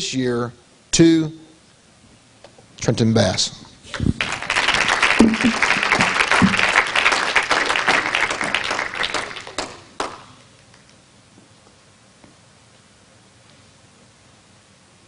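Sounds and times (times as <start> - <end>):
audience applauding: 4.2 - 10.4.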